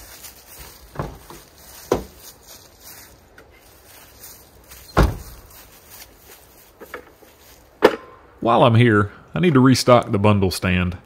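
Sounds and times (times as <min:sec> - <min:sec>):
firewood dropped with dull thuds: 0:00.8 - 0:02.2.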